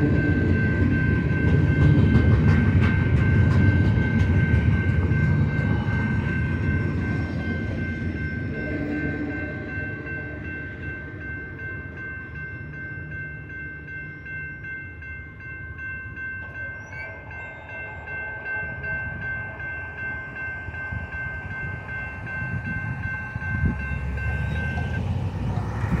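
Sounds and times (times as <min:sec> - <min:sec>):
railroad crossing bell ringing: 0:00.0 - 0:26.0
road traffic rumble: 0:20.6 - 0:26.0.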